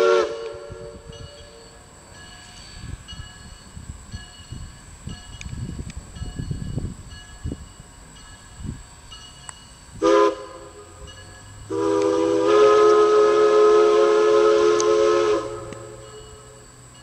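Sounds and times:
steam locomotive whistle: 0:00.0 - 0:03.0, 0:09.9 - 0:17.0.

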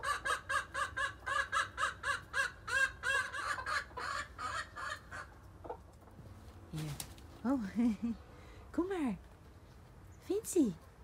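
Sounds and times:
chickens clucking: 0:00.0 - 0:07.2.

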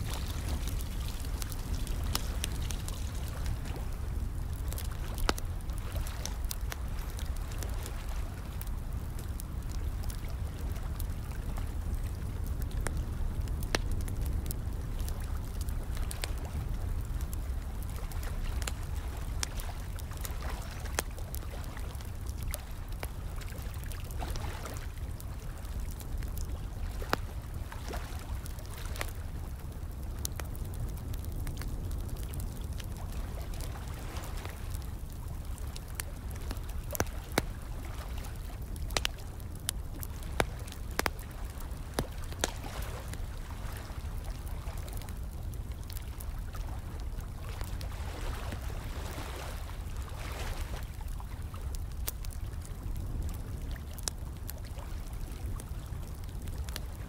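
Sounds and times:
trickling water: 0:00.0 - 0:12.0
fire crackling and popping: 0:00.0 - 0:57.0.

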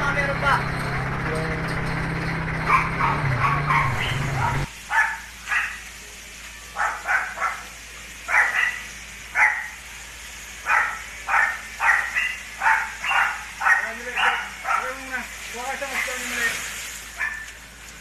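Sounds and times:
steady motor hum: 0:00.0 - 0:18.0
dog barking: 0:02.7 - 0:05.8, 0:06.8 - 0:07.7, 0:08.3 - 0:09.8, 0:10.6 - 0:15.0, 0:17.2 - 0:17.6.

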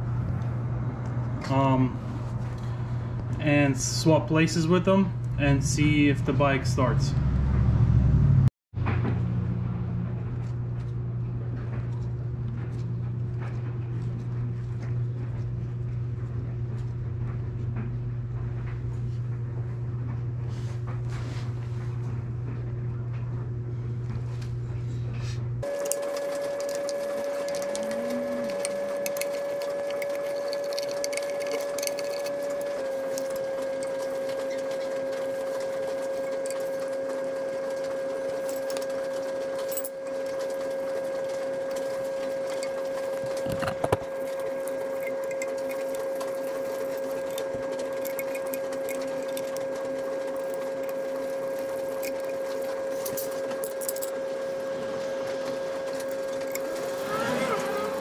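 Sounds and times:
high-pitched whine: 0:25.6 - 0:49.6.

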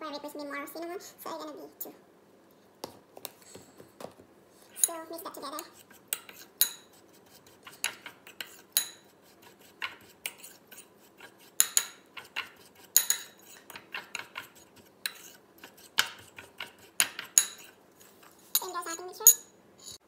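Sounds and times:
spoon scraping bowl: 0:04.6 - 0:20.0
metal spoon clinking on ceramic bowl: 0:06.1 - 0:06.9, 0:08.8 - 0:09.1, 0:11.6 - 0:14.5, 0:16.0 - 0:17.7, 0:18.6 - 0:19.5.

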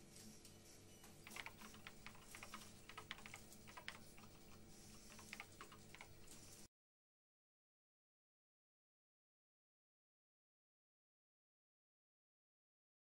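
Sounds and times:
faint irregular clicks: 0:01.2 - 0:06.6.

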